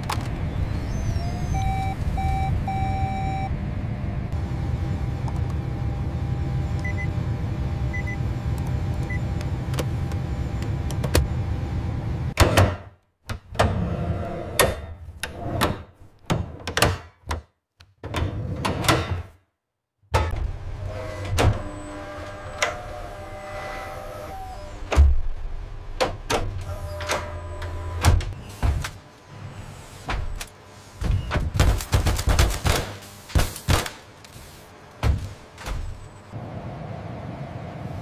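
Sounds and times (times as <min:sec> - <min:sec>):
low machine hum: 0:00.2 - 0:12.4.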